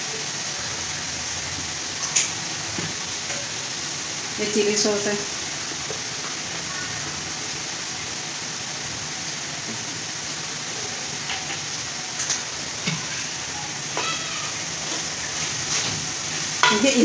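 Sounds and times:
food sizzling in a wok: 0:00.0 - 0:17.0.

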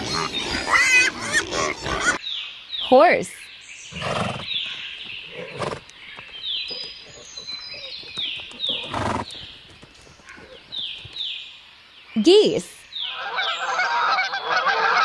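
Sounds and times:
horse hooves clopping: 0:04.1 - 0:11.3.

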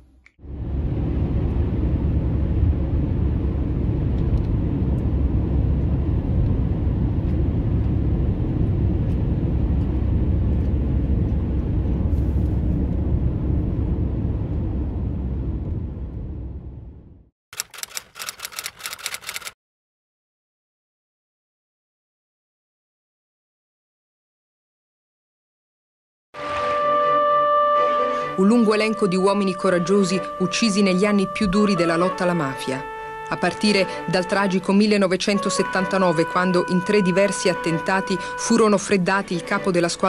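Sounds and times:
car driving on motorway: 0:00.5 - 0:17.1
rapid key clicks: 0:17.6 - 0:19.6.

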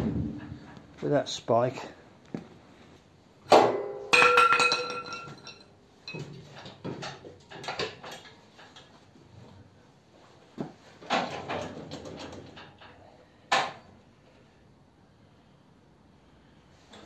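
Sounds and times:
metal-on-metal clanks: 0:03.5 - 0:08.9
light metal knocks and clinks: 0:04.2 - 0:08.9.

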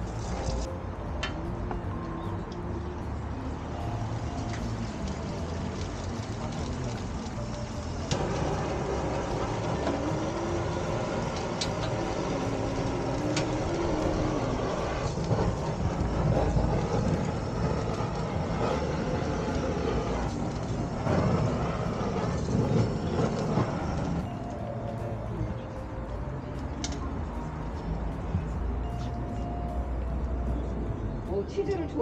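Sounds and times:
butane torch rushing: 0:00.0 - 0:00.7, 0:03.8 - 0:25.0.

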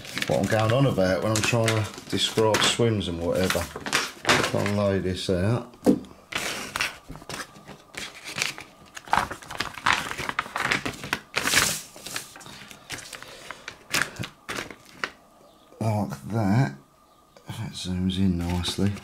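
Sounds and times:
paper map rustling and crinkling: 0:00.0 - 0:05.1, 0:06.3 - 0:15.2, 0:18.2 - 0:19.0.

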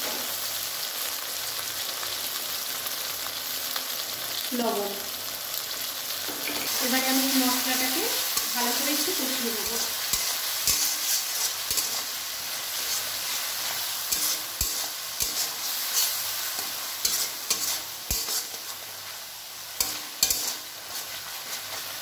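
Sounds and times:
paste sizzling in oil: 0:00.0 - 0:22.0
metal spatula scraping pan: 0:06.4 - 0:18.9, 0:19.8 - 0:22.0.

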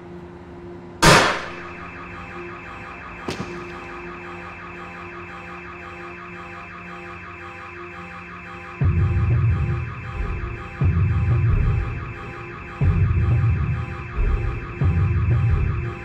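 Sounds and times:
loud gunshot: 0:01.0 - 0:01.9, 0:03.2 - 0:03.8
pulsing electronic alarm tone: 0:01.5 - 0:16.0.

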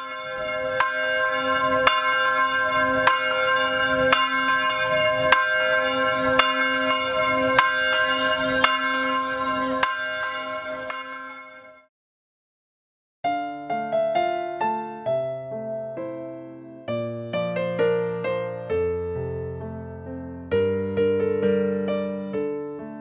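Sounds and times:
church bell tolling: 0:00.0 - 0:11.9.

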